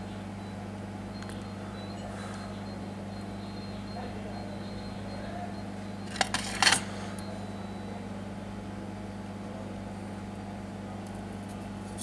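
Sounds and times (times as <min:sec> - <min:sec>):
low electrical hum: 0:00.0 - 0:12.0
metal stencil clicks and scrape: 0:06.1 - 0:06.9.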